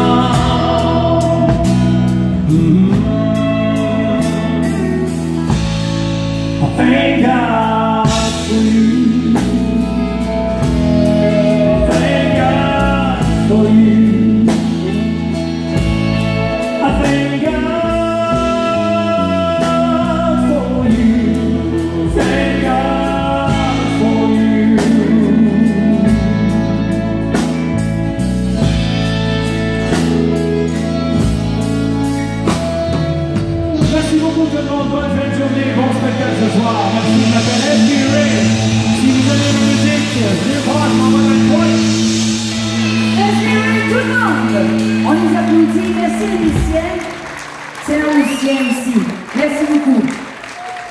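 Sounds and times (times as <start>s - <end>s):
man singing: 0.0s - 27.4s, 33.6s - 46.6s
drum kit beat: 0.0s - 50.9s
electric guitars: 0.0s - 50.9s.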